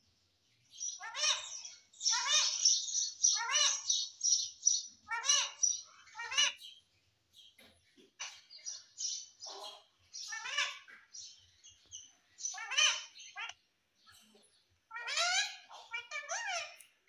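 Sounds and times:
parakeet chirping: 0.8s - 6.8s, 8.2s - 13.5s
parakeet squawking: 0.9s - 6.7s, 9.1s - 11.0s, 12.4s - 13.6s, 14.9s - 16.9s.

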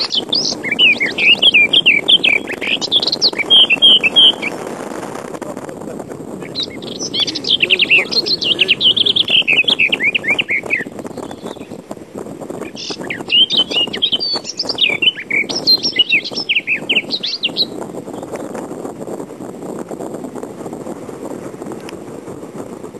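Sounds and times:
birds twittering: 0.0s - 4.9s, 6.2s - 18.8s.

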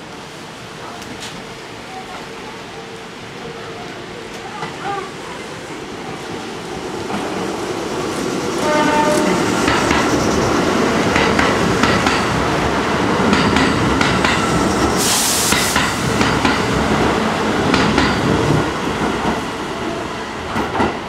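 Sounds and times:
train rumbling past: 0.0s - 21.0s
wheels clacking over rail joints: 8.6s - 12.6s, 13.2s - 14.9s
brief hiss: 14.9s - 16.0s.

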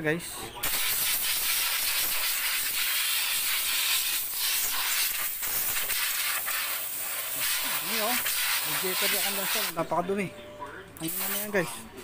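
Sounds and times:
compressed air blow gun hissing: 0.7s - 9.8s, 11.1s - 11.6s.

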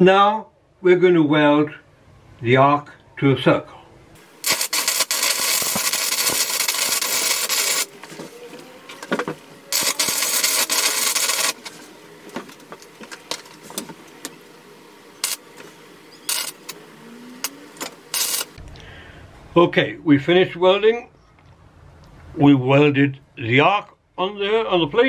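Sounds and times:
welding arc crackling and sizzling: 4.2s - 18.8s.

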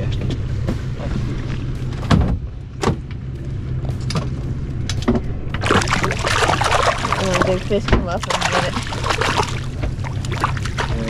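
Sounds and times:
outboard engines idling: 0.0s - 11.0s
sudden knocks and thuds: 1.9s - 3.2s.

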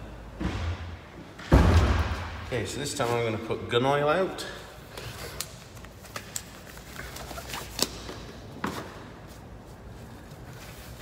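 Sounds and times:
disposable gloves rustling: 4.8s - 11.0s.

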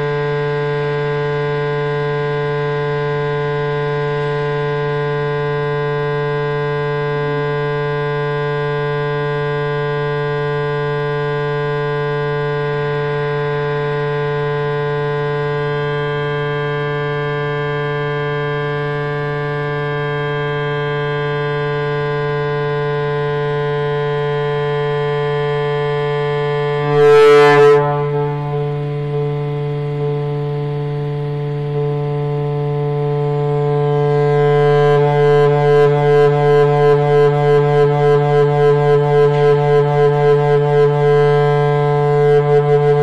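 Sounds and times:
electronic drone: 9.2s - 43.0s.

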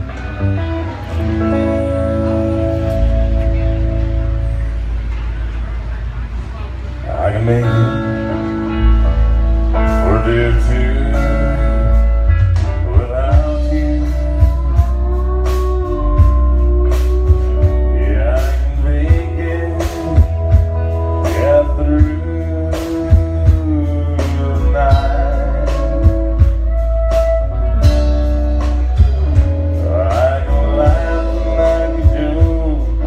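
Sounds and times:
live country band playing: 0.0s - 33.0s
person singing: 9.8s - 33.0s.

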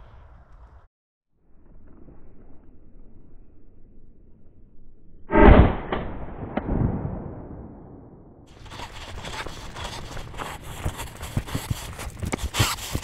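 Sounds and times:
shotgun shot with echo: 5.3s - 8.0s.

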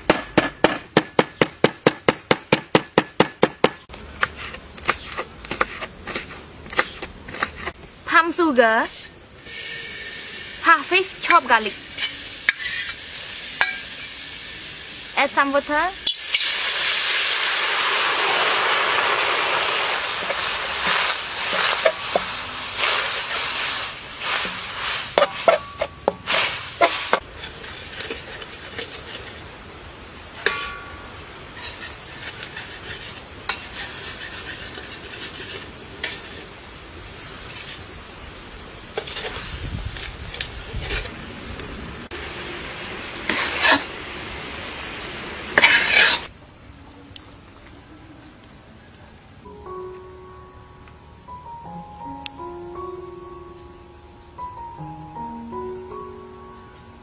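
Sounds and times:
water sizzling in hot pan: 8.9s - 29.1s, 42.0s - 46.3s
spatula scraping a pan: 12.0s - 13.0s, 19.7s - 29.4s, 31.5s - 36.5s, 39.0s - 39.5s, 43.3s - 43.9s, 45.6s - 46.3s.

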